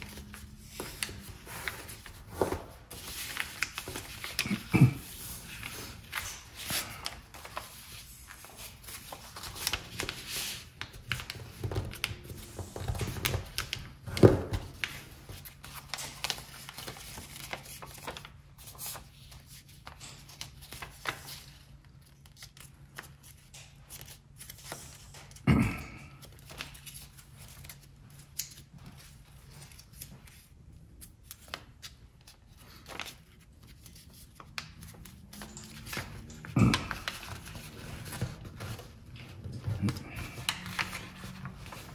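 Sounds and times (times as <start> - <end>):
paper rustling and sliding: 0.0 - 25.4, 31.2 - 41.9.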